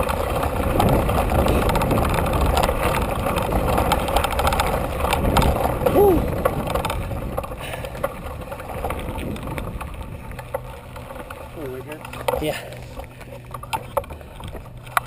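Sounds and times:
wind noise on microphone: 0.0s - 10.6s
bike rattles and clicks: 0.0s - 15.0s
tyre rumble on dirt trail: 0.0s - 15.0s.

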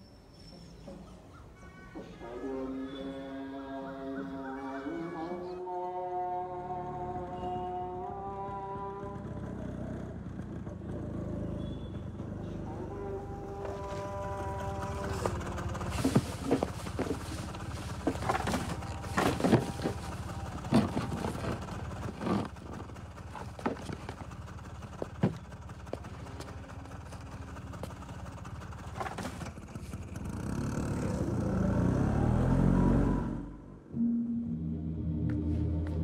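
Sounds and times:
scooter engine running: 6.6s - 32.9s
low rising drone: 30.9s - 36.0s.

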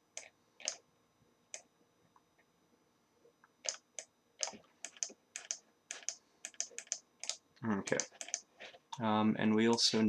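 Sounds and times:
keyboard and mouse clicks: 0.1s - 0.8s, 3.6s - 9.0s.

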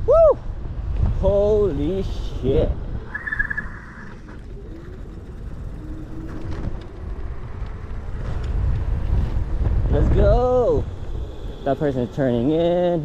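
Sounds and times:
wind rumble on microphone: 0.0s - 13.0s
high-pitched tone: 3.1s - 4.3s.

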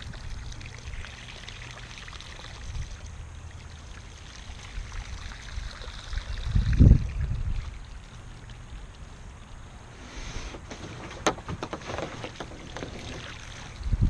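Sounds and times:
paddling water noise: 7.0s - 14.0s
sharp clicks and knocks: 10.6s - 13.3s.

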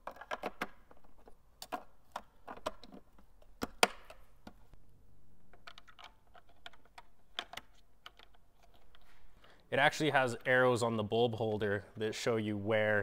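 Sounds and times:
plastic clicks and knocks: 0.0s - 4.7s, 5.5s - 9.0s.

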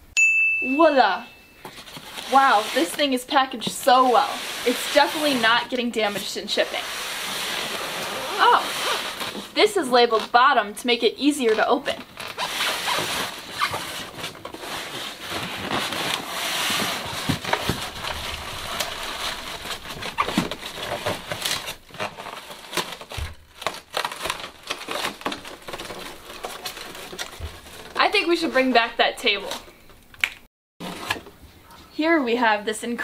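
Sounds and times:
plastic wrap crinkling: 1.7s - 10.4s, 11.4s - 29.6s
foam scraping against foam: 2.1s - 9.7s.

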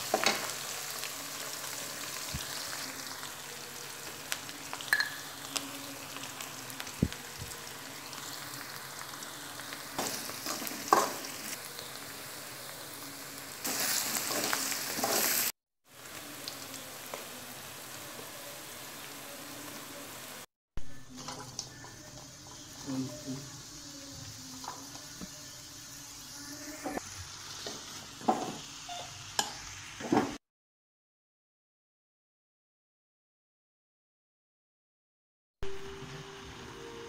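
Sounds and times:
leaves and garlic sizzling in oil: 0.0s - 30.4s
metal spatula scraping a wok: 13.7s - 15.5s.

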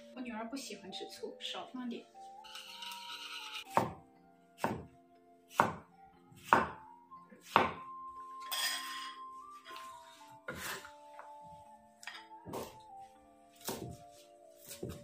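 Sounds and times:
background music: 0.0s - 15.0s
cleaver chopping on wooden board: 3.7s - 4.0s, 4.6s - 4.9s, 5.5s - 5.8s, 6.4s - 6.8s, 7.5s - 7.8s, 13.6s - 14.0s, 14.6s - 15.0s.

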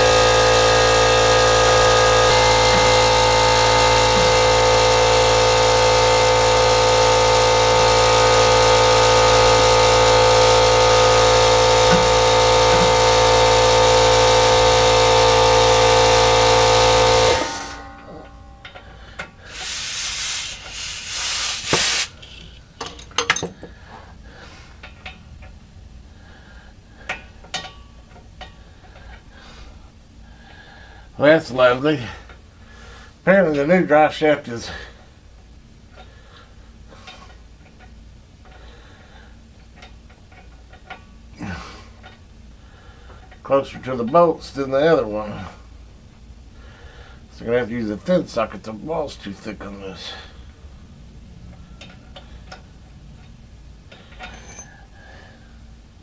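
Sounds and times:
air ratchet running: 0.0s - 17.8s, 18.6s - 22.6s, 53.9s - 55.2s
air hissing bursts: 19.4s - 22.6s.

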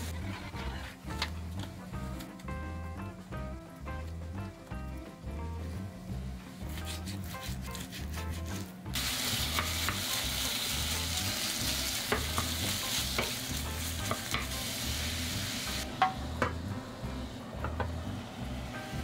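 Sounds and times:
knife cutting on cutting board: 6.7s - 8.7s
chicken sizzling in frying pan: 8.9s - 17.2s.

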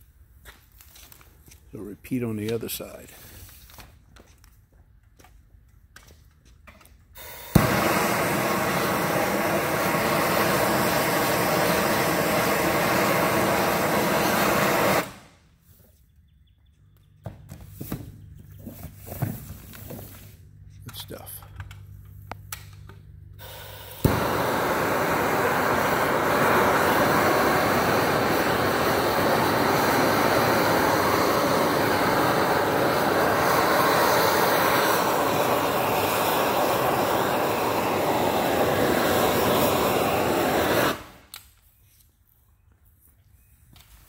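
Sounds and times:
burner igniting click: 7.2s - 15.3s, 20.8s - 41.6s
gas flame rushing: 7.2s - 15.4s, 23.4s - 41.3s.

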